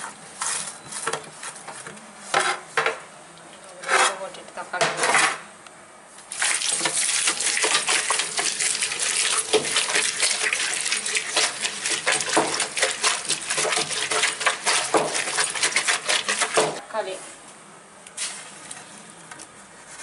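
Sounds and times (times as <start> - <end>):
stone pestle scraping and crunching: 6.8 - 16.8.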